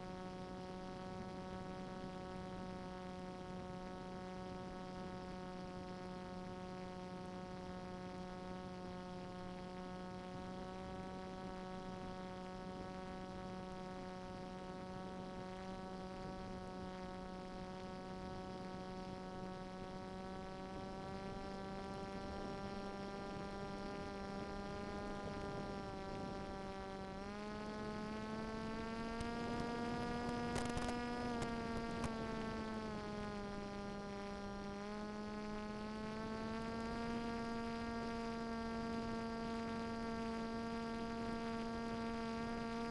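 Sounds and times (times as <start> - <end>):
electric motor propeller buzzing hum: 0.0 - 42.9
brief crackle: 30.3 - 32.2.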